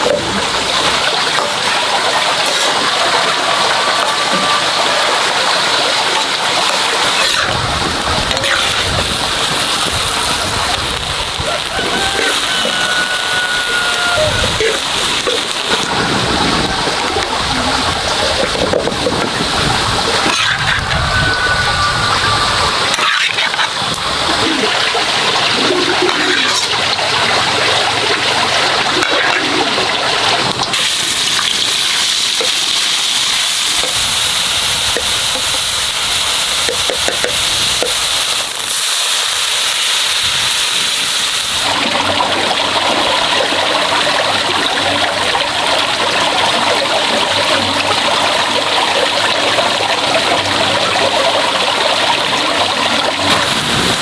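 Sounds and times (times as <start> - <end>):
water running and splashing: 0.0 - 54.0.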